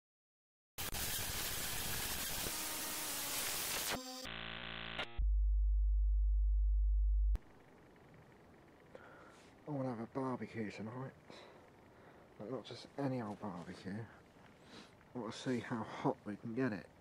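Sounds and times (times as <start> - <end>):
buzzing test-tone glitch: 0.8 - 5.3.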